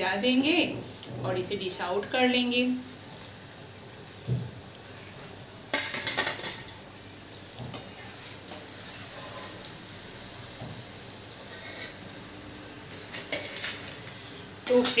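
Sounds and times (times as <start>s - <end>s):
frying oil sizzling: 0.0s - 15.0s
metal skimmer clattering on pan: 5.7s - 6.8s.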